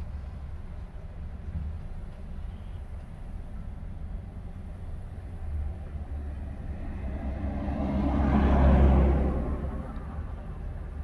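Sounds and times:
vehicle driving past on snow: 5.8 - 10.3.

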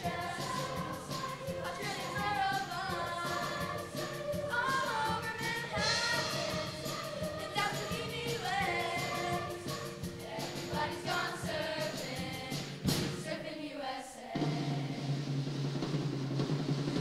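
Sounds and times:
instrumental accompaniment with beat: 0.0 - 13.4
choir of young voices singing: 0.0 - 15.3.

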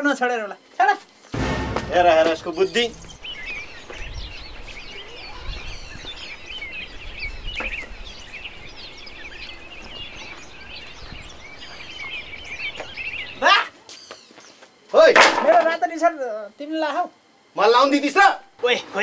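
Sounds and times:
low rumble: 1.4 - 3.2
small birds chirping: 2.5 - 14.7.

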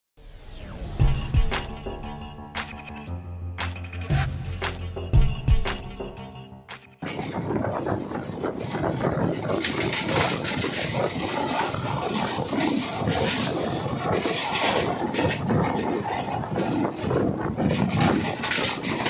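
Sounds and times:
train rumbling on rails: 7.0 - 19.0.

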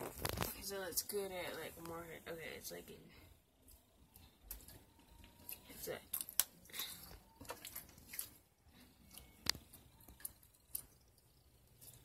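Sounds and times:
slime squishing: 3.6 - 12.0.

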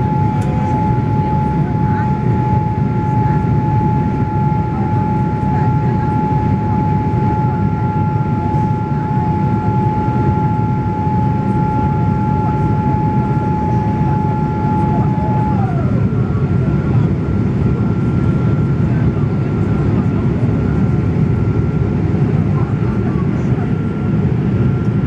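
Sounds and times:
steady high whine: 0.0 - 19.0
airplane cabin engine rumble: 0.0 - 25.0.

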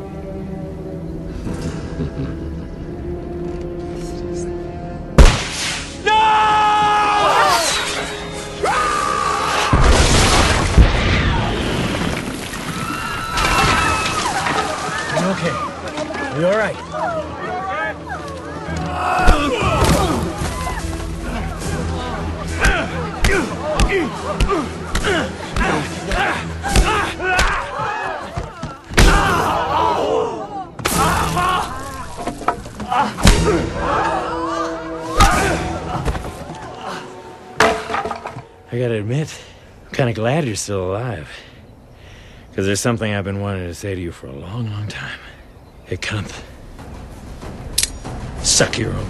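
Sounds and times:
people shouting and crying out: 6.0 - 10.0, 12.7 - 37.4.

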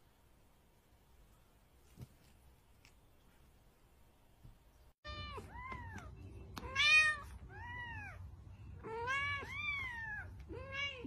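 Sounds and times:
cat meowing: 8.8 - 11.0.

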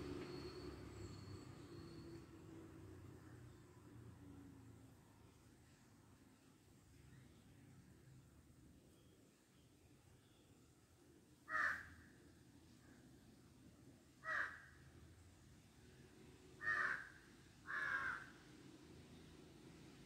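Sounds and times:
crow calling: 11.5 - 12.0, 14.2 - 14.8, 16.6 - 18.3.

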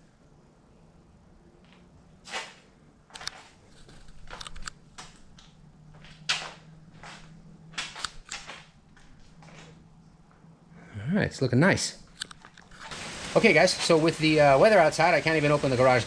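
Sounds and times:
footsteps: 1.6 - 10.5
handheld camera handling clicks: 12.1 - 12.8.

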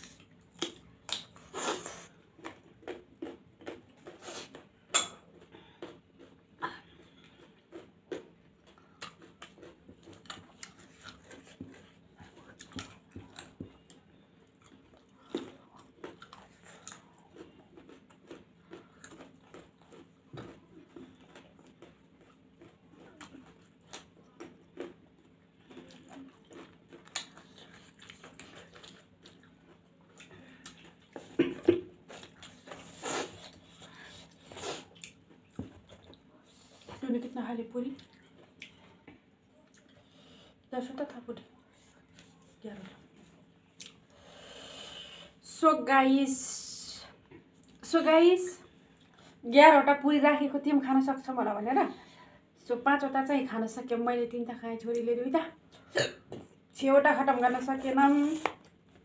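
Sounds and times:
person chewing and biting: 0.0 - 31.3
faint steady hum: 0.0 - 59.0.

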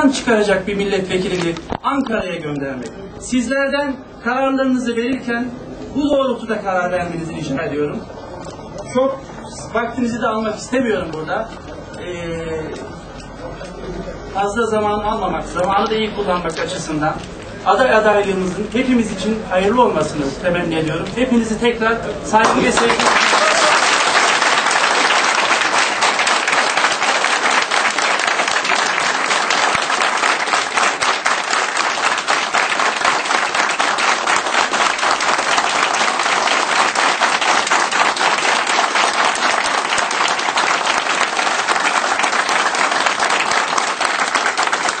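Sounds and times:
crowd applauding: 22.4 - 45.0.

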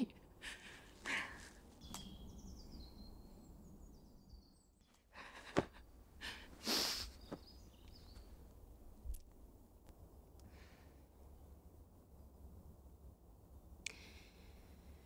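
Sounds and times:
faint birdsong: 0.0 - 15.0
person breathing in sharply: 6.2 - 7.2.

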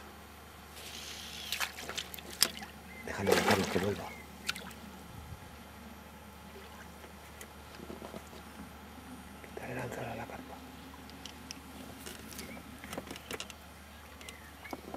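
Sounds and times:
water splashing and trickling: 0.8 - 4.8.

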